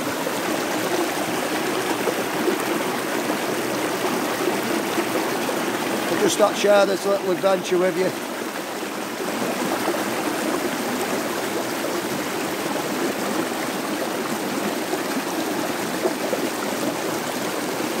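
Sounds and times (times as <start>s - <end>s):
stream running over rocks: 0.0s - 18.0s.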